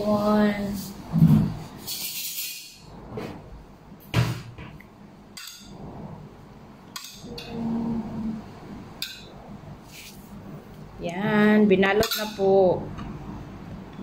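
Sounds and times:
low hum of voice: 7.2s - 8.6s.

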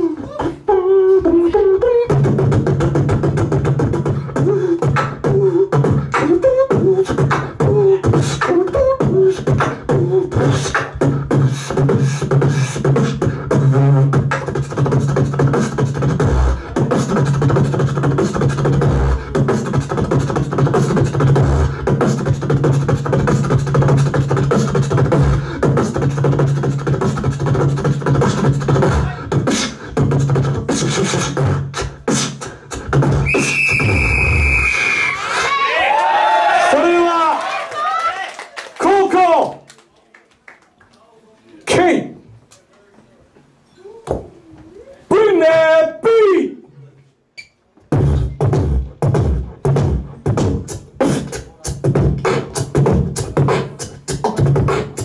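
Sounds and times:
wavering vocal melody: 0.0s - 33.3s
beatboxing drum hits: 0.0s - 35.4s, 47.8s - 55.0s.

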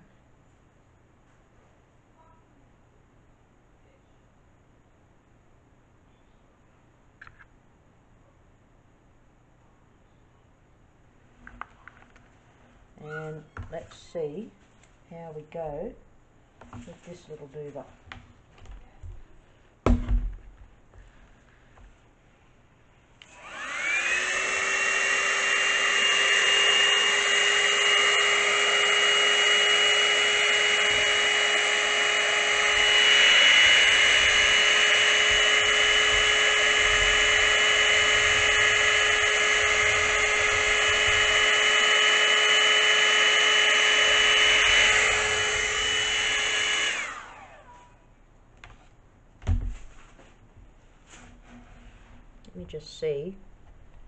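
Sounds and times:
knock: 19.8s - 20.7s
hair dryer motor whine: 23.2s - 48.0s.

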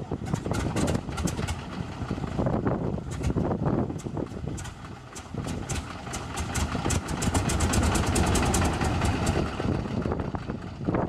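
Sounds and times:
radial aircraft engine failing to start: 0.2s - 10.9s.

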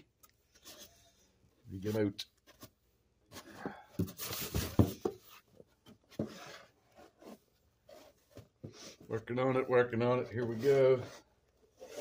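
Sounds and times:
paper sliding against cardboard: 10.3s - 12.0s.

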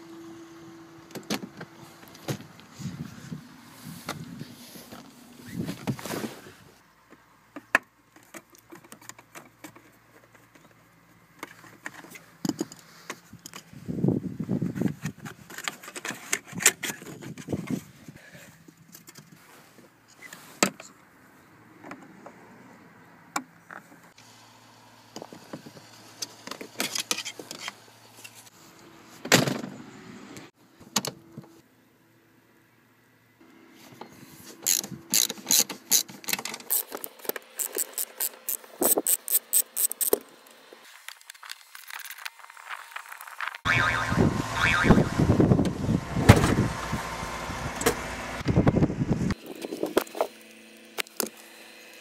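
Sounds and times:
ratchet spanner clicking: 34.6s - 36.1s, 36.7s - 40.2s.

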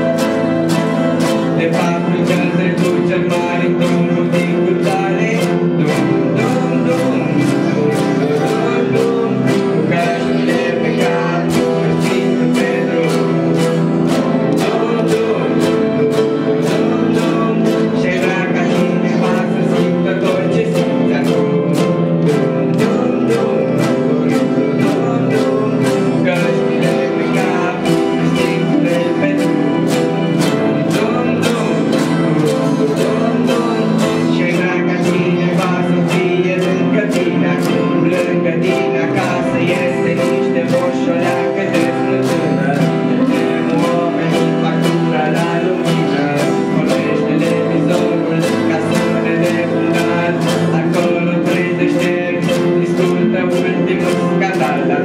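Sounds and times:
acoustic guitars strumming: 0.0s - 55.0s
children singing along: 0.0s - 55.0s.

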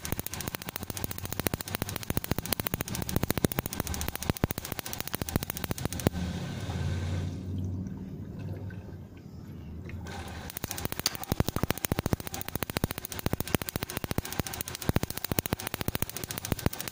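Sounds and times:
gas igniter ticking: 0.0s - 6.2s, 10.5s - 16.9s
low rushing hum: 5.9s - 10.4s.

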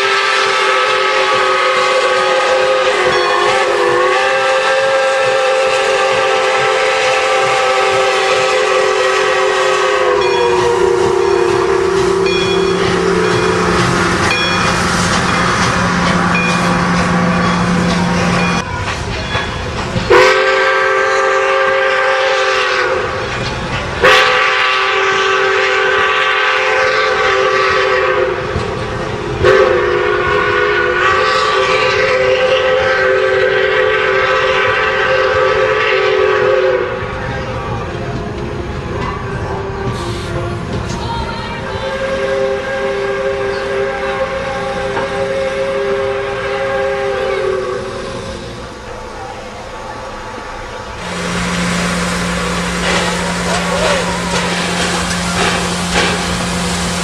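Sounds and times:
steam whistle blasts: 0.0s - 18.6s, 20.1s - 23.3s, 24.0s - 28.8s, 29.4s - 37.3s, 41.6s - 48.7s, 50.9s - 57.0s
train cars clickety-clack: 0.0s - 57.0s.

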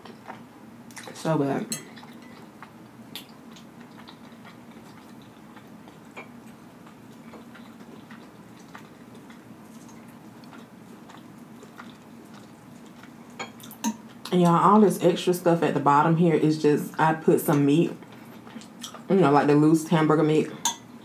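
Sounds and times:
steady low hum: 0.0s - 21.0s
soft chewing: 1.8s - 14.6s, 17.9s - 19.1s.

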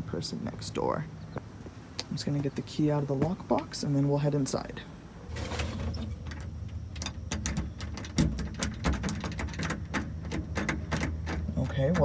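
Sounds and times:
key clicking and scraping in lock: 6.0s - 12.0s.

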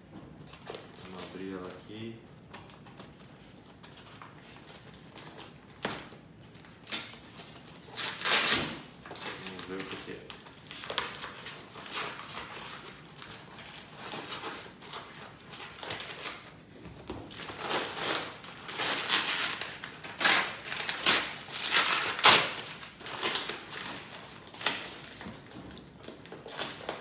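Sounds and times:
paper tearing and crumpling: 6.7s - 16.4s, 17.3s - 25.2s.

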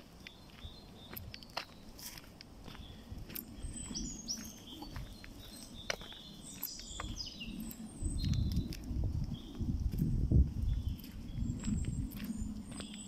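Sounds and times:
footsteps on dirt path: 0.0s - 13.0s
small birds chirping: 0.0s - 13.0s.

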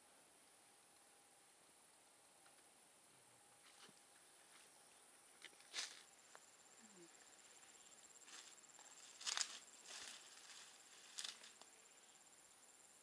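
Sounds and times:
high insect trill: 3.6s - 13.0s
footsteps through dry leaves: 8.2s - 11.6s.

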